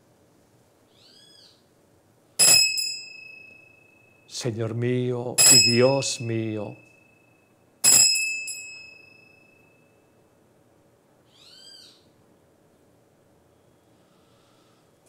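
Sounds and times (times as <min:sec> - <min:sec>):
small bell ringing: 0:02.4 - 0:04.3, 0:05.4 - 0:10.0.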